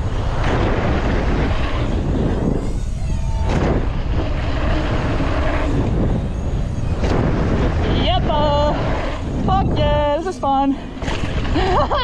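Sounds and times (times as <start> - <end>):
bicycle tyres on dirt: 0.0 - 12.0
wind rushing over microphone: 0.0 - 12.0.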